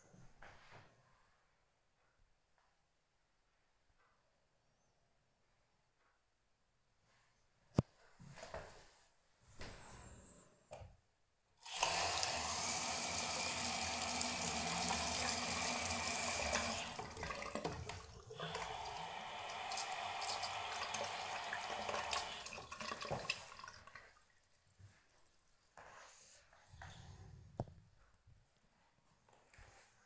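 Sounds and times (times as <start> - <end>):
tap water running into basin: 11.6 - 24.4.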